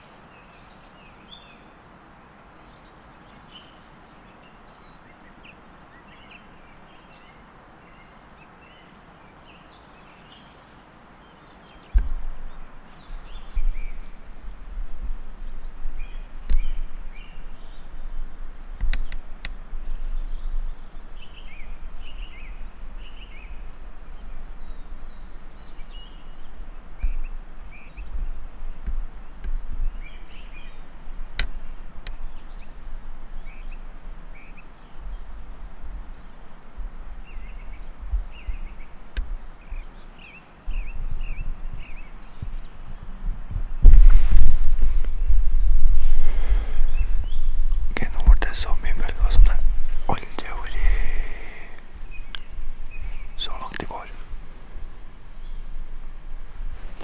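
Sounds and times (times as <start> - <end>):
faint outdoor hiss: 0.0 - 57.0
small birds chirping: 0.0 - 57.0
low rumbling with thumps on microphone: 11.9 - 22.4, 25.9 - 33.6, 40.7 - 57.0.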